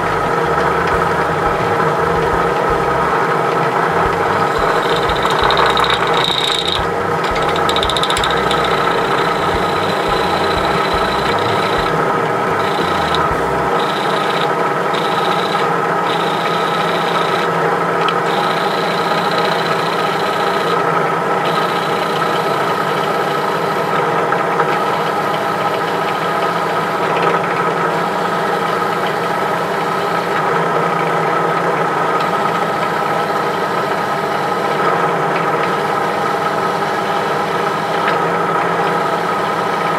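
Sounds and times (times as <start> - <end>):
drill press drilling metal: 3.7 - 27.1.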